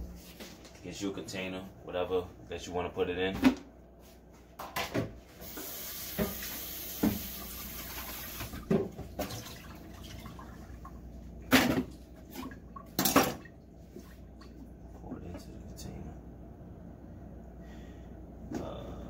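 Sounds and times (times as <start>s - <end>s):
kitchen tap water running: 5.4s - 10.9s.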